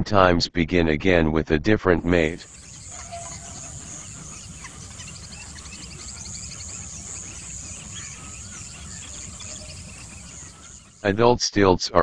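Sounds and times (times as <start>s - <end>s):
low background rumble: 2.1s - 11.2s
bird trill: 2.4s - 11.1s
high insect hum: 2.4s - 11.1s
small bird chirps: 2.4s - 11.1s.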